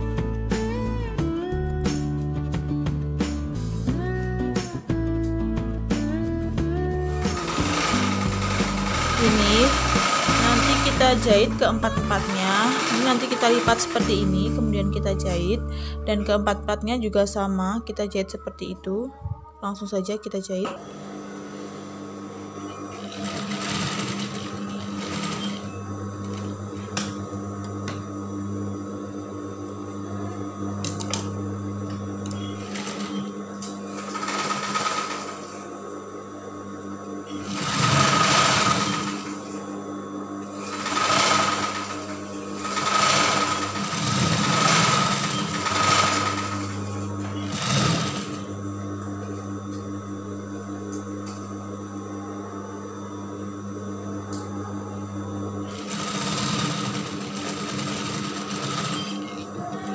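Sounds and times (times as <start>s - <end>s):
motor hum: 4.1s - 59.9s
sewing machine stitching: 7.1s - 14.3s, 22.9s - 26.4s, 32.3s - 33.3s, 33.9s - 35.6s, 37.4s - 39.5s, 40.6s - 48.5s, 55.7s - 59.5s.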